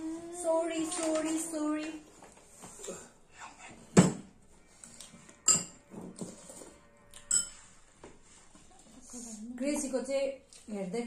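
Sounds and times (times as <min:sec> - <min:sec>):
dishes and cutlery clinking: 0:05.1 - 0:08.0.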